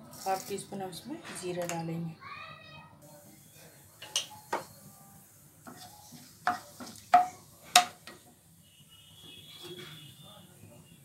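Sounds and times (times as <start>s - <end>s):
seeds sizzling in hot oil: 0.0s - 0.7s, 3.0s - 8.2s
spatula knocking and scraping pan: 5.6s - 8.2s.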